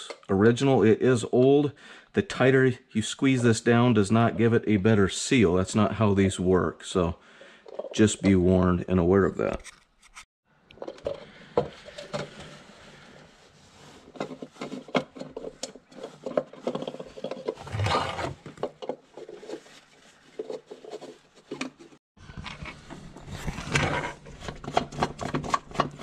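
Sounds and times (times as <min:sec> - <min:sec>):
plastic rubbing and scraping: 0:09.4 - 0:26.0.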